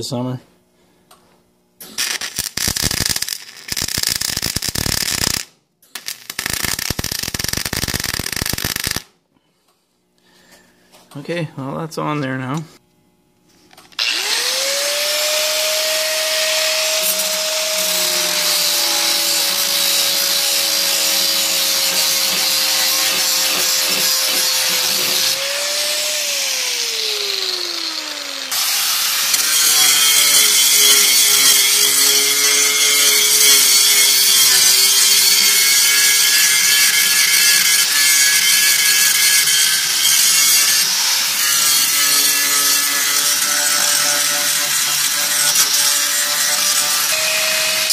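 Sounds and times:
angle grinder grinding steel: 14.0 - 47.9.

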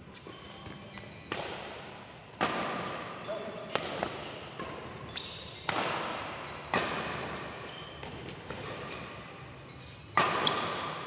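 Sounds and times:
badminton racket hitting shuttlecock: 1.3 - 1.8, 3.7 - 7.7, 10.1 - 11.0.

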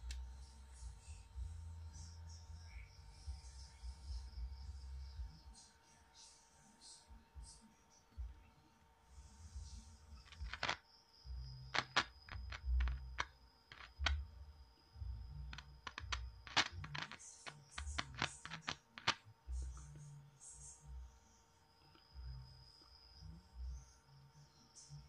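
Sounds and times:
speaker clicks and pops: 10.2 - 10.8, 11.8 - 14.2, 15.5 - 19.2.

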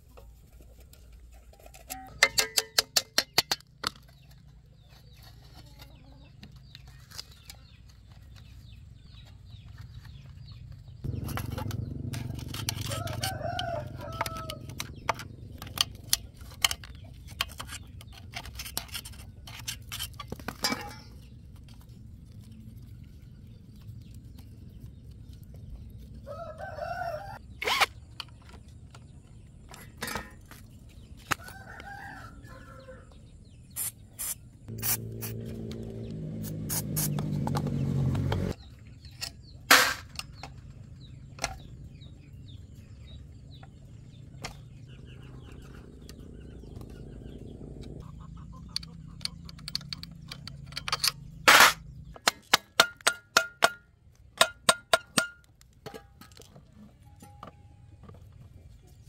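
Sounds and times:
sharp clicks and knocks: 1.8 - 4.5, 47.8 - 58.2
low hum rising in pitch: 11.1 - 16.2, 34.7 - 38.6, 44.8 - 52.1
rooster crowing: 12.8 - 14.8, 26.2 - 27.4, 31.5 - 33.1.

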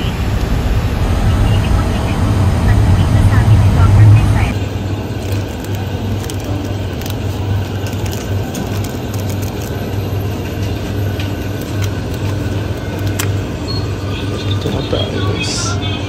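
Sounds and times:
refrigerator low hum: 0.0 - 16.0
plastic packaging clicks: 5.1 - 13.4.

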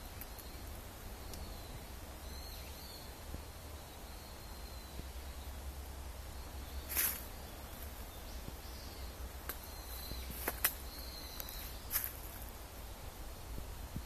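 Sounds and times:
footsteps on dry leaves: 6.9 - 8.1, 9.9 - 12.5.

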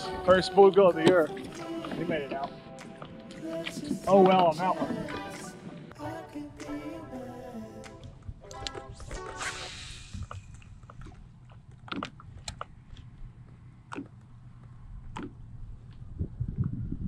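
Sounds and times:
short hiss: 9.0 - 10.7
wind rumble on microphone: 14.8 - 17.0.

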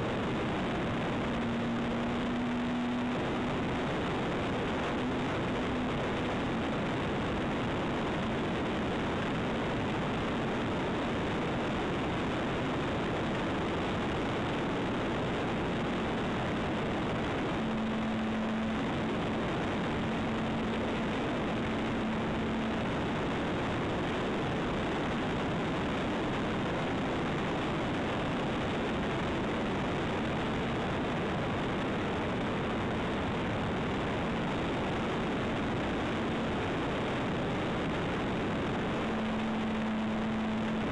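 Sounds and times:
low steady hum: 0.0 - 40.9.

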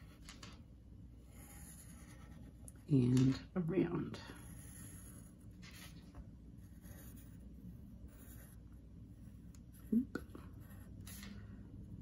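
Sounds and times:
pencil scratching on paper: 1.2 - 3.1, 4.2 - 11.5.

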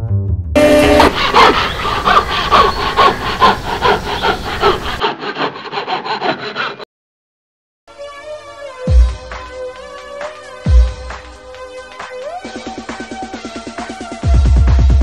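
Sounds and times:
hand saw cutting wood: 0.6 - 6.9.

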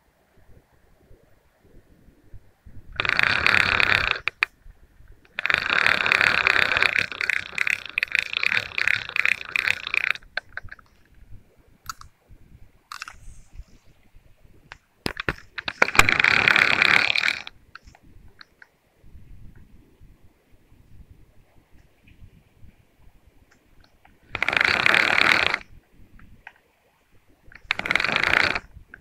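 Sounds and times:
fishing reel cranking: 3.0 - 4.5, 5.3 - 10.9, 15.1 - 18.6, 24.3 - 25.7, 27.5 - 28.7.

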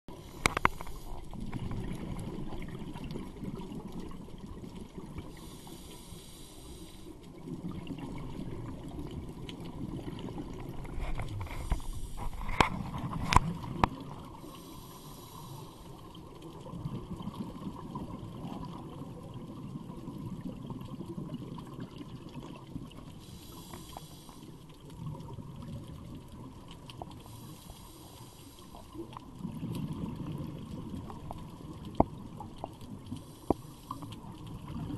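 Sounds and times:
exhaled bubbles rumbling underwater: 0.1 - 34.9
regulator hissing inhalations: 5.4 - 7.1, 14.4 - 16.0, 23.2 - 24.6, 27.2 - 28.8.

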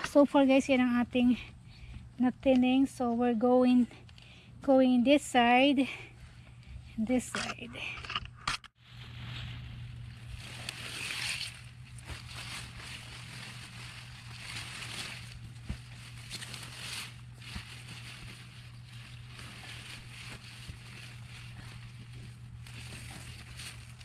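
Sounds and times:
steady low hum: 0.0 - 24.0
leaves and stems rustling: 8.8 - 24.0.

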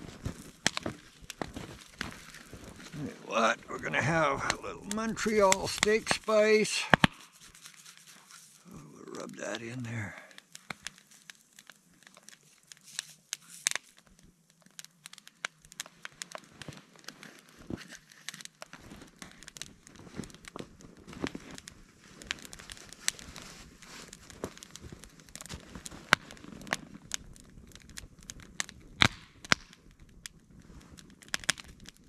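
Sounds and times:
movement crunching in snow: 0.0 - 8.7, 16.4 - 27.0
wood fire crackling and popping: 0.0 - 32.0.

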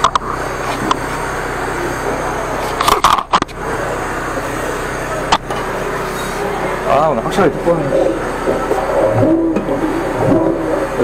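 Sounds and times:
sharp clicks and clatter: 0.0 - 1.0, 2.8 - 3.6
engine and pump hum: 0.0 - 11.0
water jet hissing: 3.6 - 11.0.

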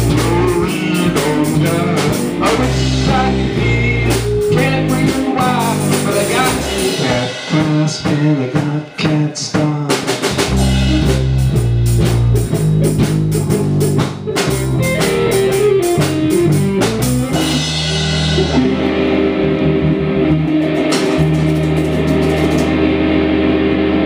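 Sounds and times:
rock band playing: 0.0 - 24.0.

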